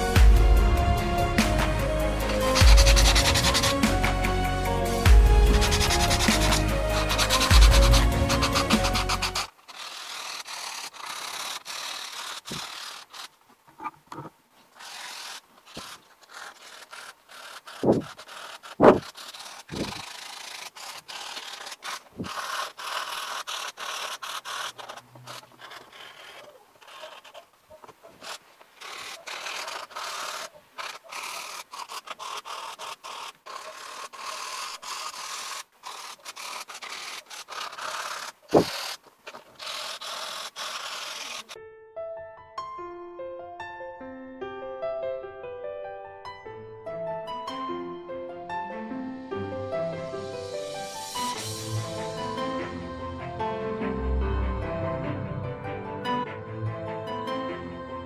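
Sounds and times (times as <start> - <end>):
sponge scrubbing cardboard: 1.4 - 13.4, 14.7 - 41.6.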